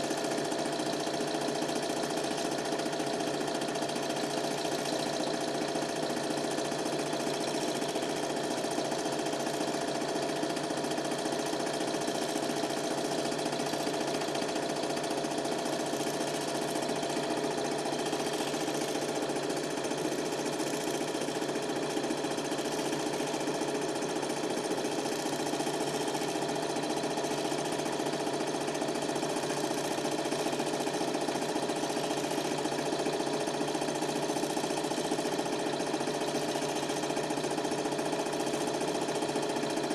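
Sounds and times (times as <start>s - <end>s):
film projector whirring rattle: 0.0s - 39.9s.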